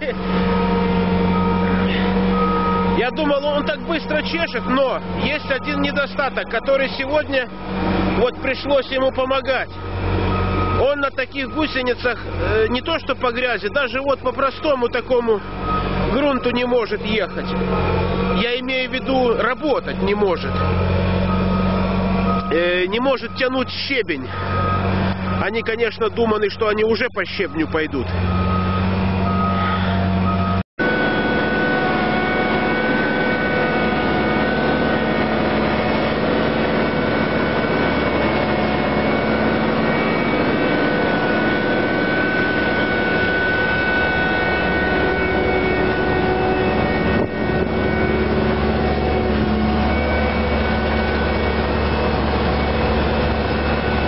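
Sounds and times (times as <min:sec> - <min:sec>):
heavy diesel engines running: 0:00.0 - 0:54.0
short beeps: 0:01.3 - 0:06.4, 0:20.4 - 0:25.8, 0:27.3 - 0:30.6
high whine: 0:28.3 - 0:54.0.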